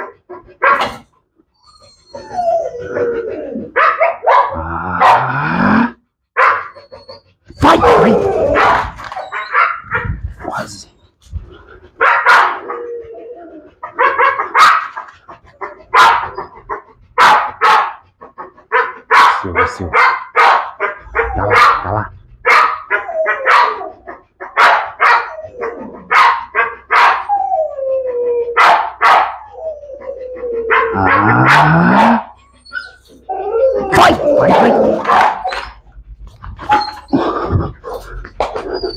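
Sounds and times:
dog barking: 0.0 - 1.0, 3.8 - 5.4, 6.4 - 6.8, 7.6 - 10.2, 12.0 - 12.8, 13.9 - 18.0, 18.7 - 27.3, 28.6 - 29.5, 30.7 - 32.4, 33.9 - 35.8
dog whining: 0.0 - 19.9, 20.8 - 38.9.

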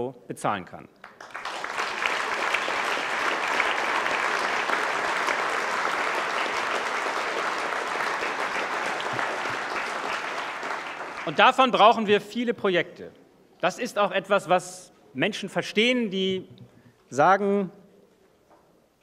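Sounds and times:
audience applauding: 1.0 - 12.1.

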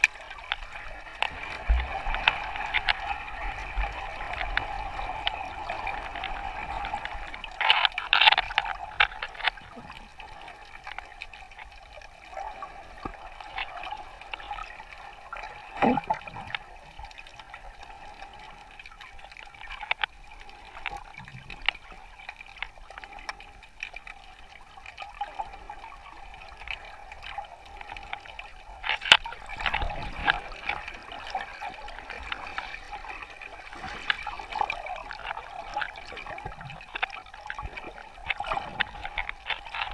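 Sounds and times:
small clicks: 0.0 - 5.4, 6.2 - 10.1, 27.8 - 39.9
water sloshing and bubbling: 0.0 - 39.9
water splashes: 0.0 - 39.9.

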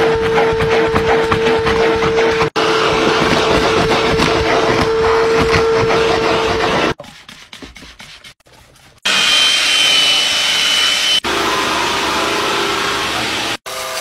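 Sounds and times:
upholstery extractor suction: 0.0 - 7.0
vacuum cleaner humming: 0.0 - 7.0, 9.0 - 14.0.

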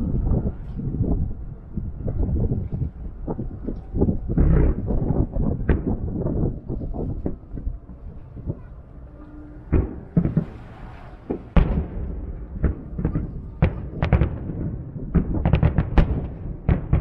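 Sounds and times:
firework shells booming: 4.0 - 7.4, 9.6 - 17.0.

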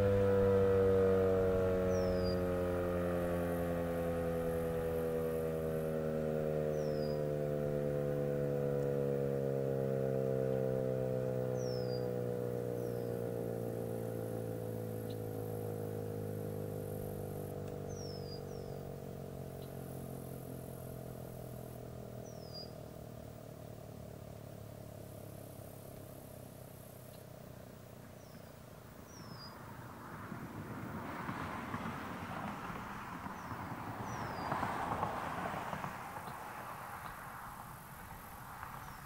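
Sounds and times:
rotating warning siren winding down: 0.0 - 27.8.

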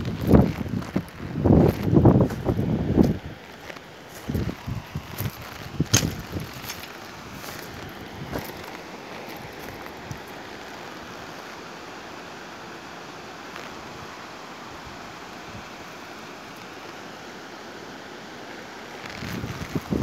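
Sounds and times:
wind buffeting microphone: 0.0 - 8.7, 19.0 - 20.0
rushing water: 0.0 - 20.0
wind: 0.0 - 20.0.

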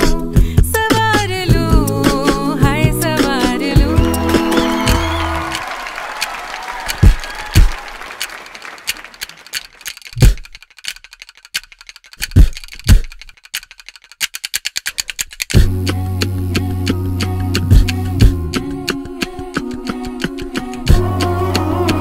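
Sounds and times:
applause: 4.0 - 9.9
wooden clappers clicking: 4.0 - 15.7.

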